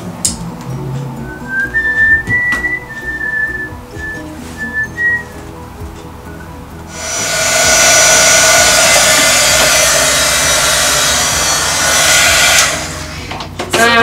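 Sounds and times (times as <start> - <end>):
heat gun blowing air: 6.9 - 13.4.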